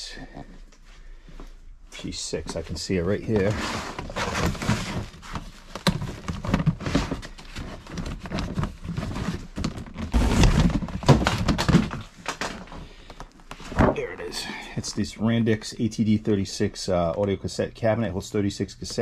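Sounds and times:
bubble wrap rustling: 3.0s - 12.8s
plastic tote sliding: 3.2s - 5.5s, 6.2s - 11.9s
plastic knocks and thunks: 9.5s - 12.6s.

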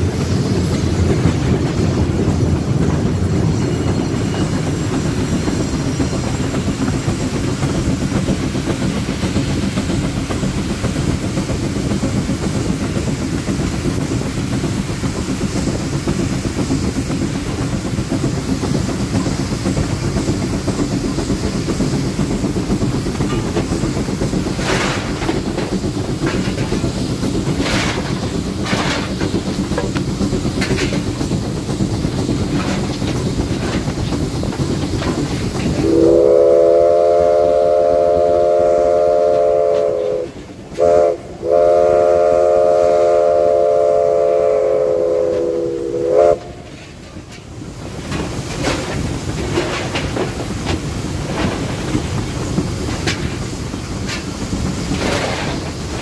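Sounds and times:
steam train rumbling on track: 0.0s - 56.0s.

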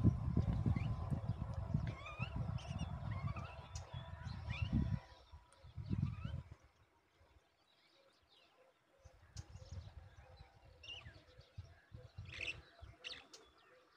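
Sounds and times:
low irregular rumble: 0.0s - 5.0s.

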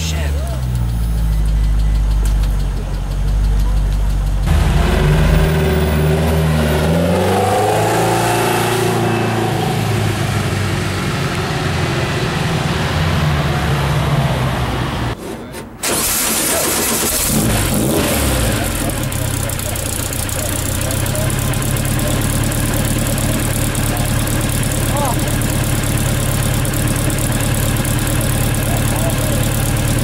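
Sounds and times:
car engine idling: 0.0s - 15.2s, 15.9s - 30.0s
car engine revving and pulling away: 0.0s - 15.2s, 15.9s - 30.0s.

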